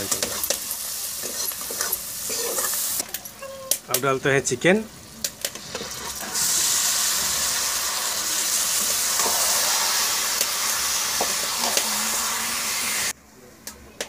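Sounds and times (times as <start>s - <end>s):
chicken sizzling in hot oil: 0.0s - 3.1s, 5.0s - 13.2s.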